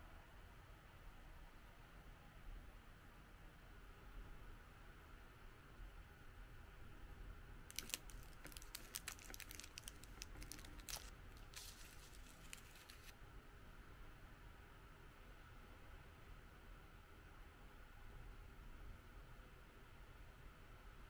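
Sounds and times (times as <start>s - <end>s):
scissors cutting plastic wrapper: 7.7s - 13.1s.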